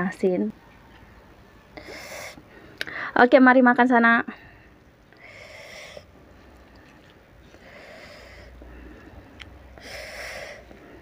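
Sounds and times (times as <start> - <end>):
short breaths through nose: 1.8 - 3.2, 4.5 - 6.1, 7.5 - 11.0
person eating close up: 4.8 - 9.7.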